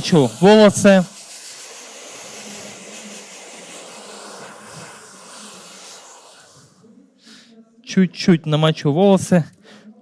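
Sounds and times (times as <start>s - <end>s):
spray bottle misting hiss: 0.0s - 6.8s.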